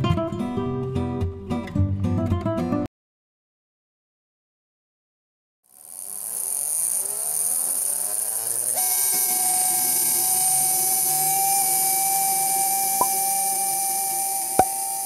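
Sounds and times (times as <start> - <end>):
small electric motor whining: 5.7 - 15.0.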